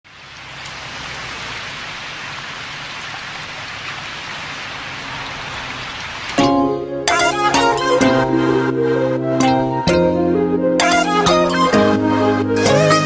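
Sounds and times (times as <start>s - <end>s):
rain-like hiss: 0.1s - 6.6s
sustained string-like chords: 6.4s - 13.0s.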